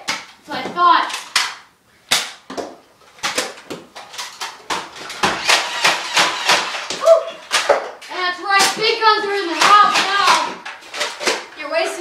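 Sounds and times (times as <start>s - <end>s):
toy dart blasters clicking and firing: 5.2s - 7.8s, 9.6s - 11.5s.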